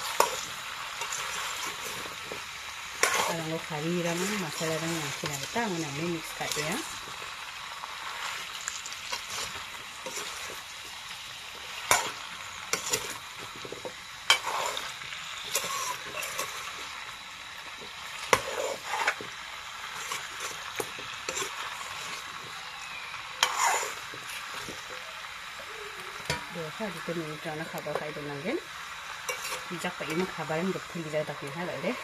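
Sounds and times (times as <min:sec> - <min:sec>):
metal ladle scraping a pan: 0:00.0 - 0:07.3, 0:08.0 - 0:10.6, 0:11.6 - 0:16.9, 0:18.1 - 0:22.3, 0:23.4 - 0:24.9, 0:29.2 - 0:30.4
meat sizzling in a wok: 0:00.0 - 0:32.0.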